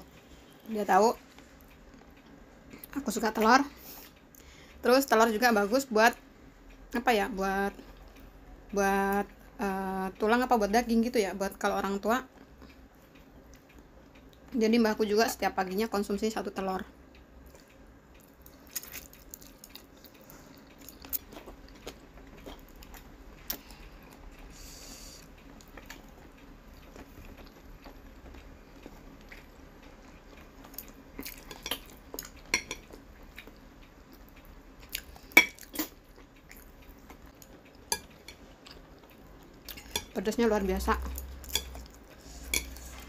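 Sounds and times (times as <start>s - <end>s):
chewing: 17.4s - 24.3s, 25.4s - 40.2s
chopsticks tapping on plate: 31.3s - 33.0s, 40.8s - 42.9s.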